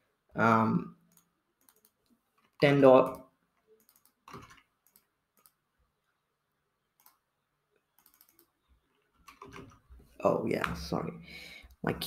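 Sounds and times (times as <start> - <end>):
mouse and keyboard clicks: 7.0 - 7.2, 7.9 - 8.5.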